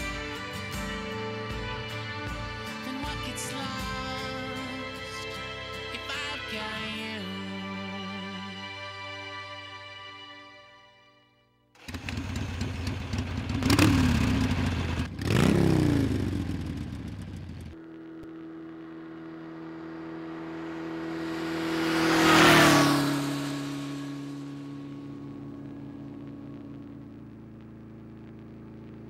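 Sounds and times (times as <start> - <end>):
motorcycle passing by: 0.0 - 2.7, 11.8 - 26.7
motorcycle engine revving: 0.0 - 4.2, 11.8 - 29.0.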